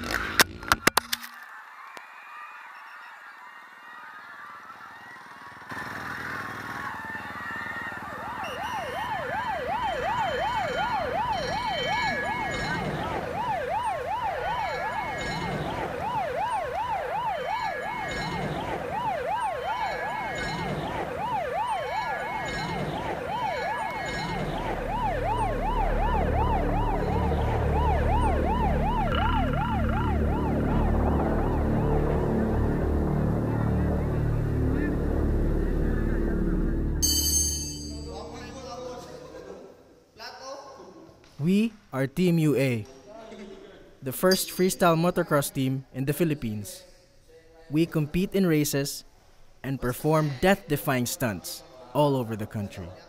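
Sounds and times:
siren fast yelp: 6.8 - 33.8.

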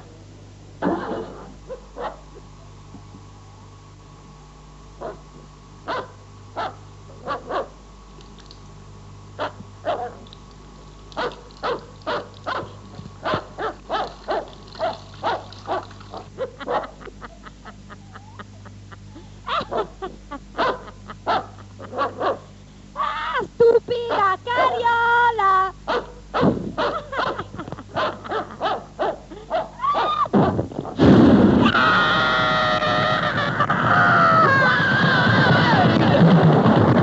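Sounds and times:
steady low hum: 0.0 - 37.0
dog barking: 1.7 - 2.2, 5.0 - 5.2, 5.9 - 7.8, 9.4 - 10.3, 11.2 - 17.0, 19.5 - 20.0, 20.6 - 22.5, 25.9 - 30.3.

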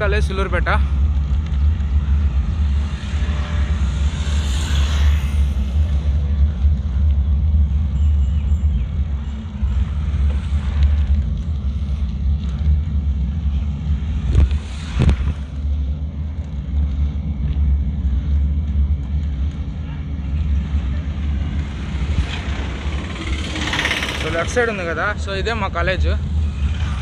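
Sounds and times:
wind buffeting microphone: 4.7 - 25.3.

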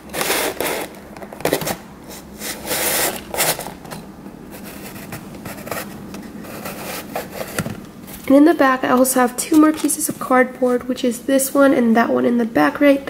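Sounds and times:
cardboard rubbing and scraping: 0.1 - 1.8, 2.4 - 3.8, 4.5 - 7.7.

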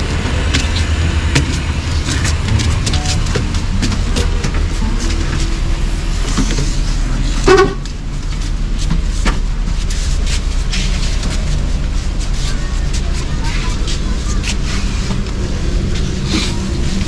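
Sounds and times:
bus engine and road rumble: 0.0 - 17.0
bus horn toot: 2.6 - 6.2, 7.4 - 7.9.

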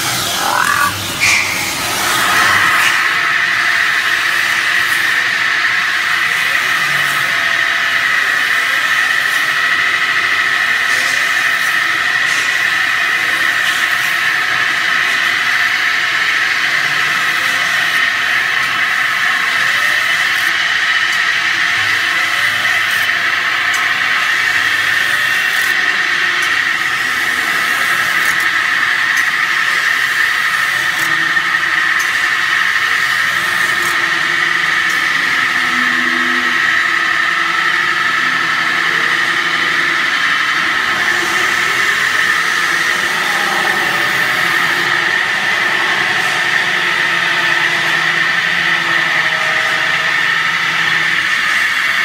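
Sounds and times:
high-pitched metal squeal: 0.0 - 7.4, 29.2 - 52.0
machine running noise: 0.0 - 52.0.

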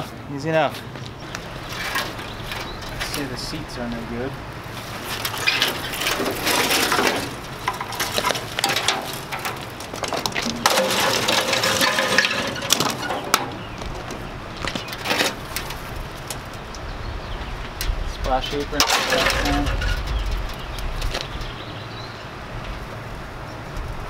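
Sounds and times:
sheet metal rattling and clanking: 5.0 - 16.6, 17.8 - 21.6.

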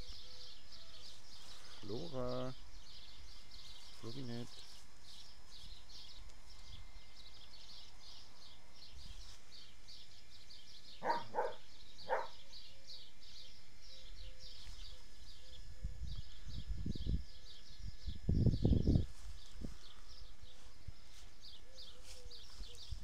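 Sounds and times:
dog barking: 11.0 - 12.4.

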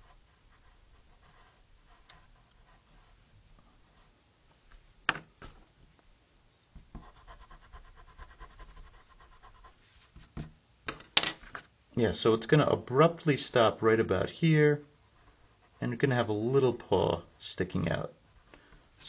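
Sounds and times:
pencil scratching on paper: 0.0 - 3.1, 6.9 - 10.5.

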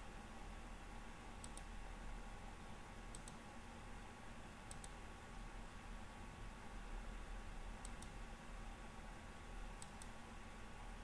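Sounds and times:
low electrical hum: 0.0 - 11.0
computer mouse clicking: 1.4 - 1.7, 3.1 - 3.5, 4.6 - 5.4, 7.8 - 8.2, 9.8 - 10.2.

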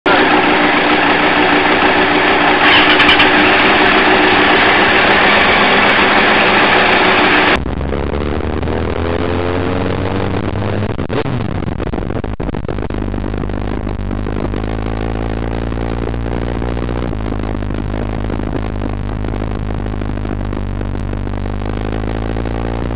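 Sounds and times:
vehicle engine running hard: 0.0 - 22.9
loud rushing noise: 0.1 - 9.0.

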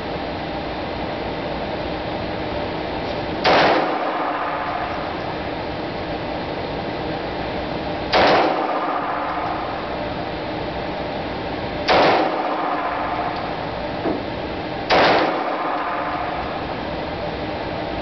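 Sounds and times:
steady background noise: 0.0 - 18.0
pistol shots echoing indoors: 3.4 - 5.5, 8.1 - 10.2, 11.8 - 13.9, 14.8 - 16.9.

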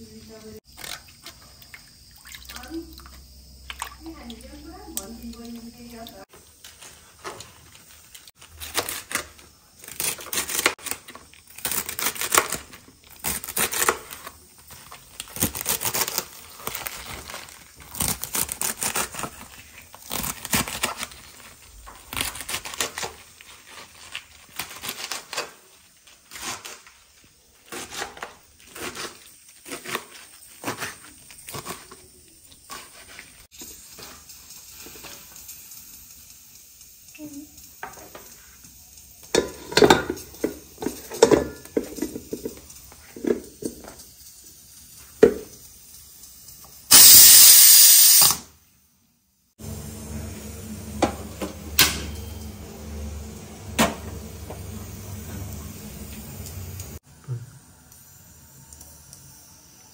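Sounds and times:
knife chopping crunchy greens: 27.6 - 33.2.

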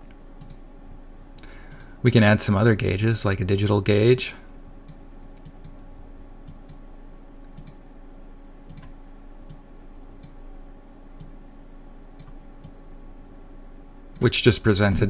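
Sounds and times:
low electrical hum: 0.0 - 15.0
computer mouse clicking: 0.4 - 0.6, 4.8 - 5.8, 7.5 - 7.8, 8.7 - 8.9, 10.2 - 10.4, 11.2 - 11.4, 12.2 - 12.8.

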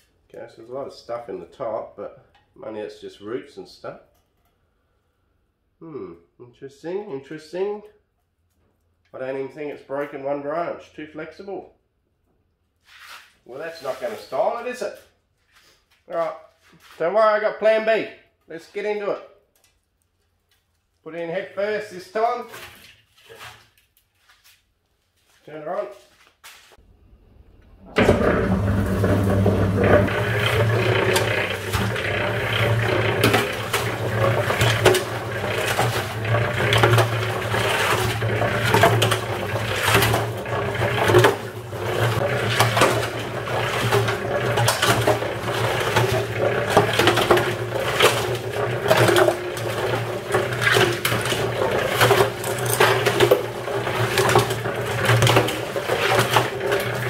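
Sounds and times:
cement mixer motor humming: 27.5 - 57.0
bricks clattering in turning drum: 28.0 - 57.0.

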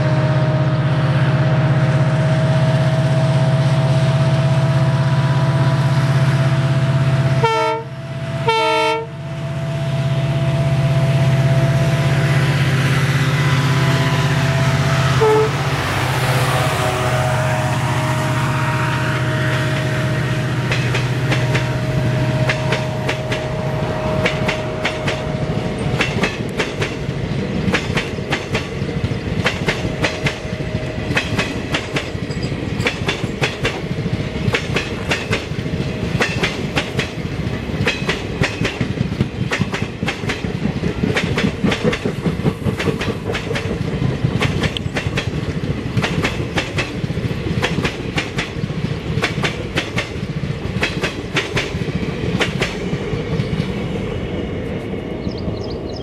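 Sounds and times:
low train rumble: 0.0 - 56.0
train wheels clattering over rail joints: 20.6 - 54.0.

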